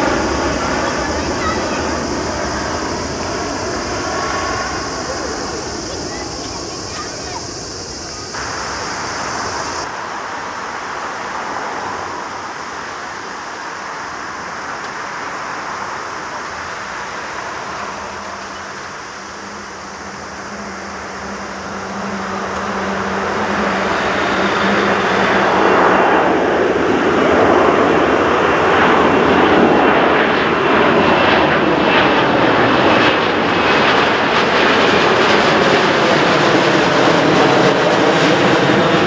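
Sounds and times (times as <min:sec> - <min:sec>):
low drone: 0:00.0 - 0:12.4
jet engine roar: 0:00.0 - 0:39.0.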